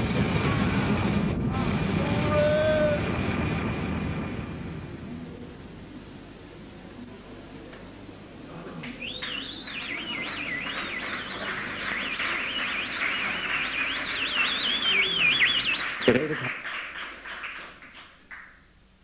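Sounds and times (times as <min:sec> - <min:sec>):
dense noisy synthesizer wash: 0:00.0 - 0:05.8.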